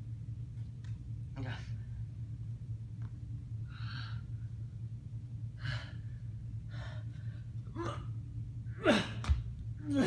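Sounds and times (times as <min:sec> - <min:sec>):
steady low hum: 0:00.0 - 0:10.0
person breathing hard: 0:05.5 - 0:07.6.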